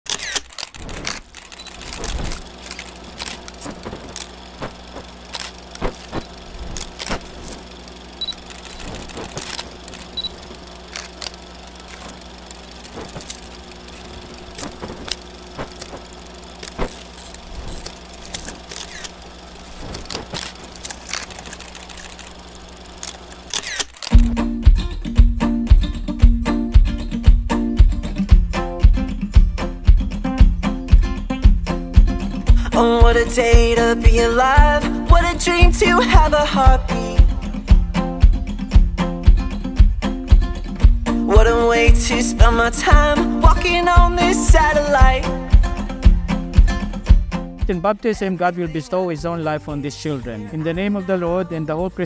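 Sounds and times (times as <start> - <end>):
low hum: 0.5 - 24.4
music: 24.1 - 52.0.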